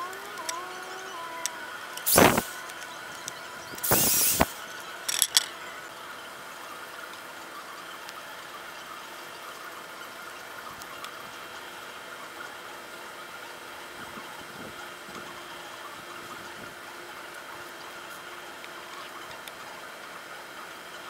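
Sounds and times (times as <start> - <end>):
faint steady hum: 0.0 - 21.0.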